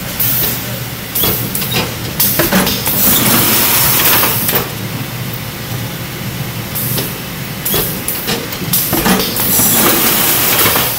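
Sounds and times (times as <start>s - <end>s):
packing machinery running: 0.0s - 10.9s.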